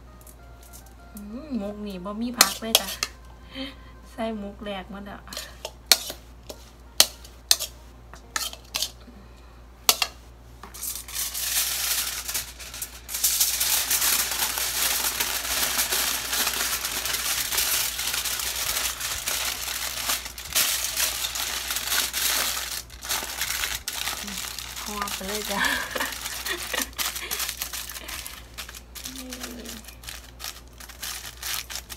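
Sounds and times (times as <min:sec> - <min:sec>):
aluminium foil crinkling: 0:02.3 - 0:03.2, 0:10.7 - 0:31.9.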